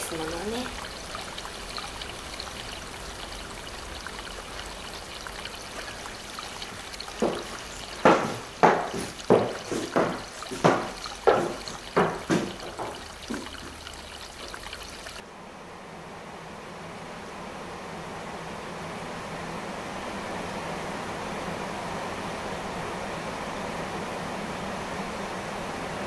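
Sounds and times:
steady hiss: 0.0 - 15.2
footsteps of hard-soled shoes: 5.9 - 13.9.

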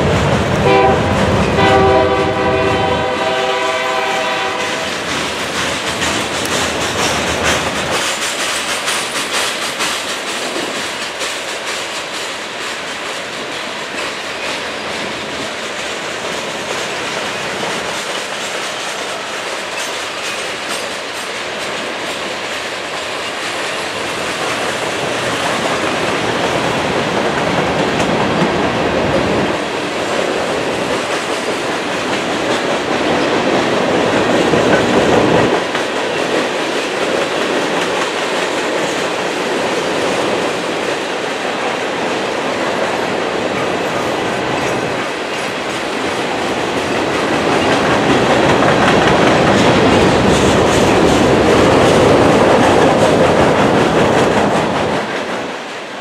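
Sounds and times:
wheels clacking over rail joints: 0.0 - 55.9
freight train rolling by: 0.0 - 56.0.

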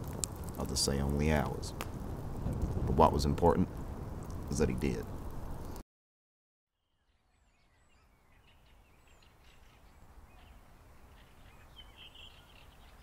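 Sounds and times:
faint woodland ambience: 6.8 - 13.0
small birds chirping: 6.8 - 13.0.

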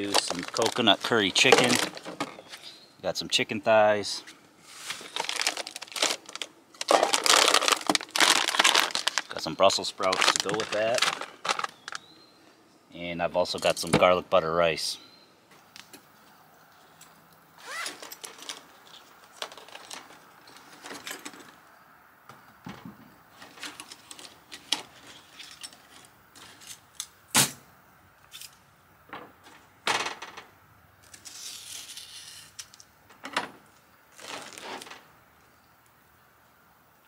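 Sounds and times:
rustling: 0.0 - 2.8, 4.2 - 12.1, 33.7 - 35.1.

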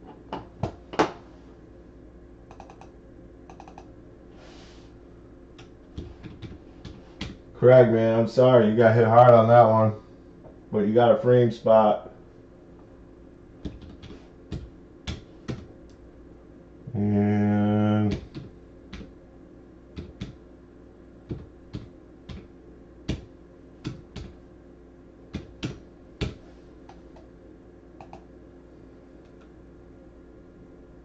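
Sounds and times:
loud low hum: 0.0 - 31.0
computer keys clicking: 2.5 - 2.9, 3.5 - 3.9, 28.0 - 28.2.

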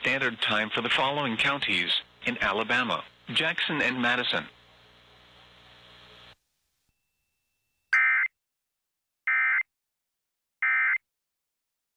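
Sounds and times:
faint radio hiss: 0.0 - 6.9.

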